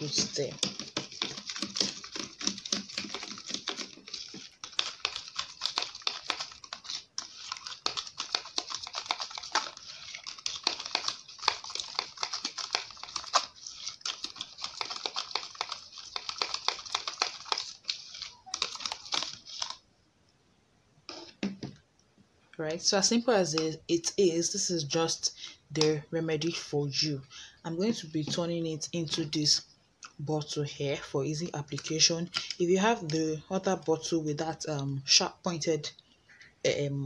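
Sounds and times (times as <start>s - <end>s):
metal spoon stirring in plastic bowl: 0.0s - 19.8s, 31.3s - 34.4s.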